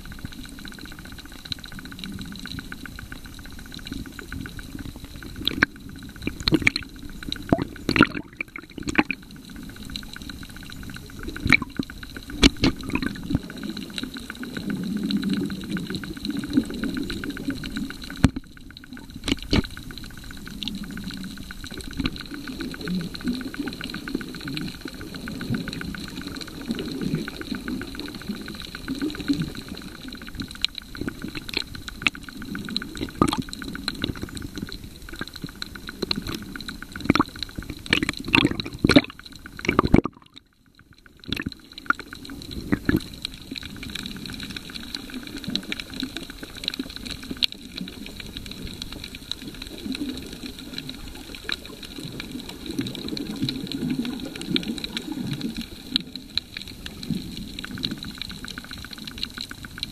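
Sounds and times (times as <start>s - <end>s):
underwater water wash and rumble: 0.0s - 59.9s
sharp clicks and knocks: 11.4s - 13.4s.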